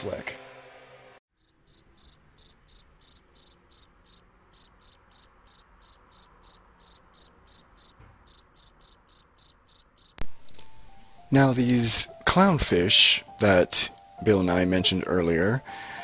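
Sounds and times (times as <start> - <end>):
cricket chirping: 1.4 - 10.2.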